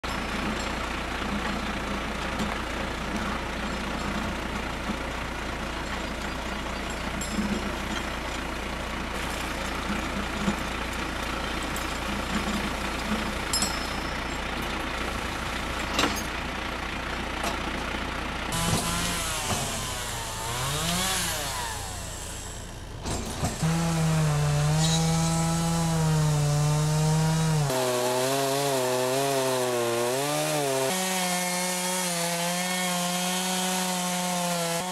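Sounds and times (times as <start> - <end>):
tractor engine running: 0.0 - 34.9
chainsaw revving: 18.5 - 34.9.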